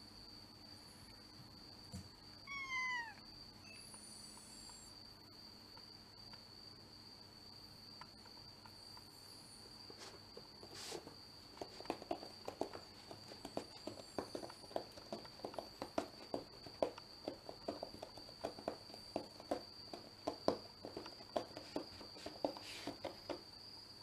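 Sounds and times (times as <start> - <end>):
cat meowing: 2.4 - 3.8.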